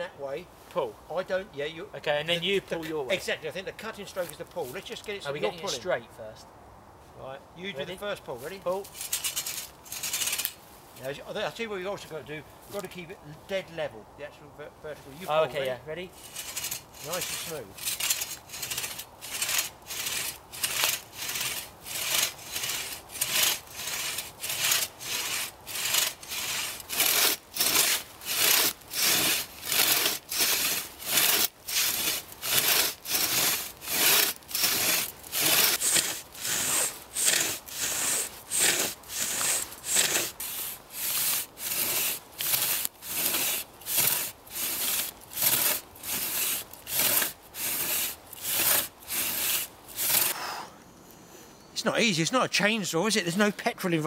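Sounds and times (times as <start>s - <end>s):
crosscut saw cutting log: 8.8s - 10.6s, 15.3s - 50.7s.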